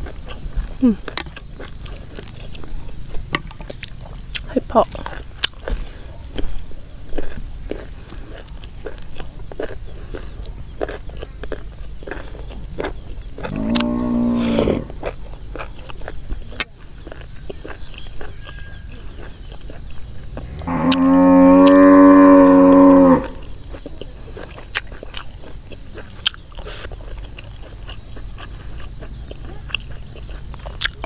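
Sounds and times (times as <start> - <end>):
cow eating clicks and smacks: 0.0 - 14.3, 14.9 - 31.0
cow mooing: 13.5 - 15.0, 20.4 - 23.4.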